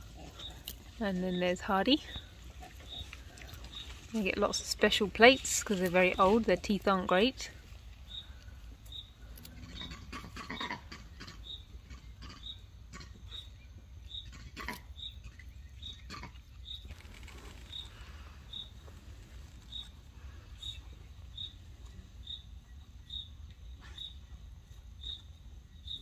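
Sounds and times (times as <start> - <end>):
quiet outdoor ambience: 0.0 - 26.0.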